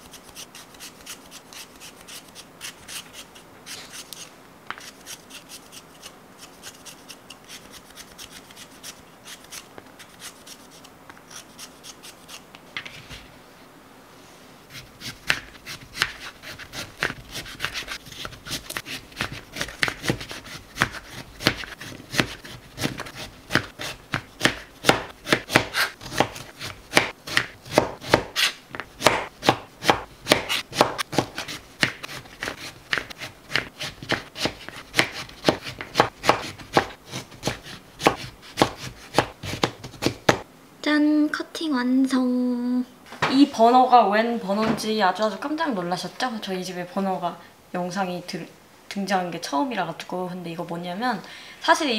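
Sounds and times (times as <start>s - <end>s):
peeler scraping potatoes: 0.0s - 12.4s, 14.7s - 28.6s, 29.4s - 40.4s
knife chopping on cutting board: 14.7s - 40.4s.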